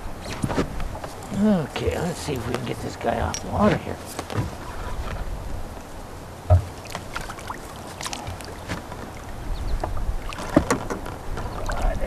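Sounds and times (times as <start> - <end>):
water sloshing and splashing: 6.4 - 12.0
knocks on boat: 6.5 - 6.8, 9.8 - 11.5.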